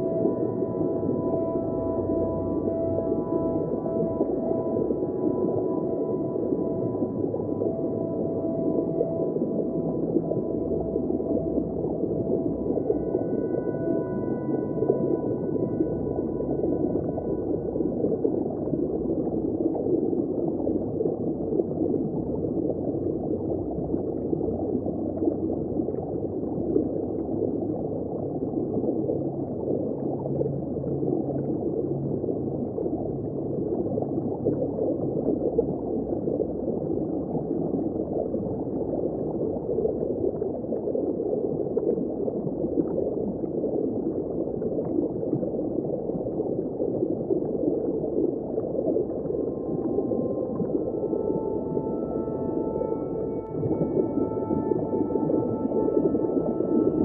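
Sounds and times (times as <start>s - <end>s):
underwater rush of water: 0.1s - 57.0s
faint high tones: 49.1s - 57.0s.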